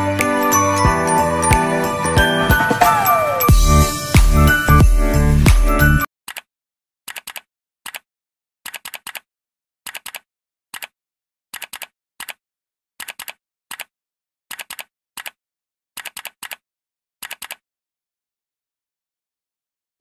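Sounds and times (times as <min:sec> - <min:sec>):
keyboard key clicks: 0:07.1 - 0:08.1, 0:08.7 - 0:09.3, 0:09.9 - 0:11.0, 0:11.6 - 0:12.4, 0:13.0 - 0:13.9, 0:14.5 - 0:15.4, 0:16.0 - 0:16.6, 0:17.2 - 0:17.6.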